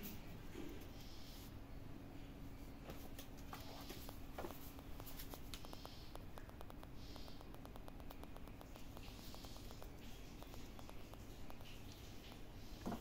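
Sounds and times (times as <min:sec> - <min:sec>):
kitten claws scratching on floor: 0:03.0 - 0:12.6.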